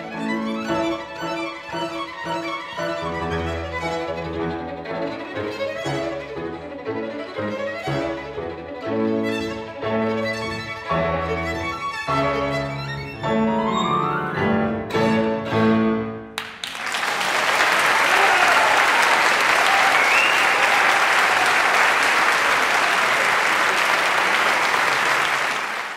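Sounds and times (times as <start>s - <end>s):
violin and piano playing: 0.0s - 16.3s
audience applauding: 16.4s - 25.9s.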